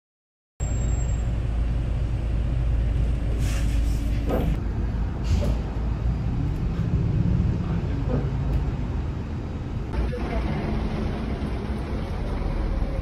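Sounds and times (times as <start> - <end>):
bus engine and road rumble: 0.6 - 13.0
short air hisses: 3.4 - 4.4.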